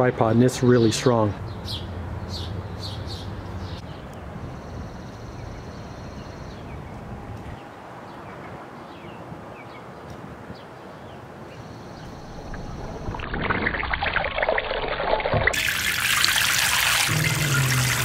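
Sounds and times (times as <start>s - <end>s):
wild birds chirping: 0.6s - 13.1s.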